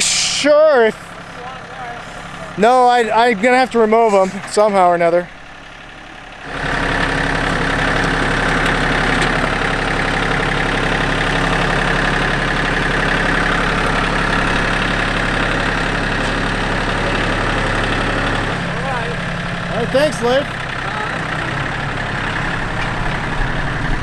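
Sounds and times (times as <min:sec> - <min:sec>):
loader bucket working ground: 0:00.0 - 0:24.0
tractor engine humming: 0:00.0 - 0:24.0.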